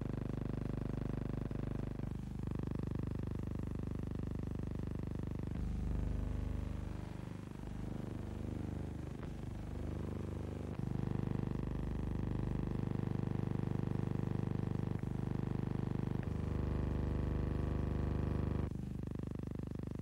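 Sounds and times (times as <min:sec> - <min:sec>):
low electrical hum: 0:05.2 - 0:20.0.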